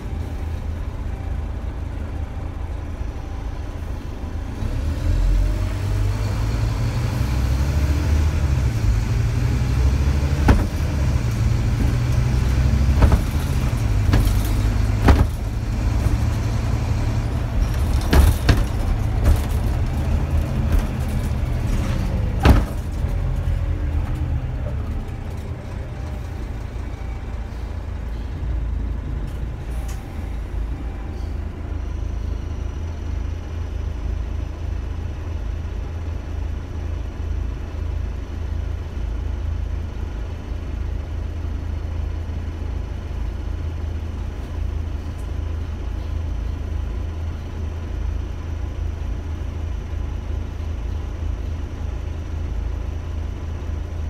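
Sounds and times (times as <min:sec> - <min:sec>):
bus engine drone: 0:00.0 - 0:54.0
bus body knocks and rattles: 0:08.3 - 0:26.2.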